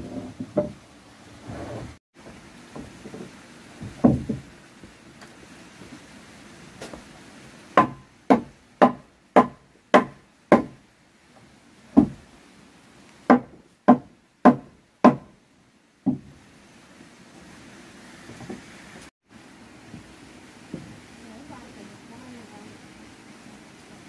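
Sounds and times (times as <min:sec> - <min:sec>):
hammer knocking wedge into wood: 0:03.9 - 0:04.4.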